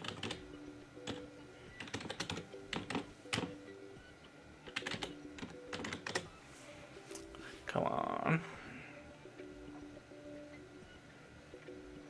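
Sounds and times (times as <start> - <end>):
laptop keyboard typing: 0.0 - 3.6, 4.6 - 6.4.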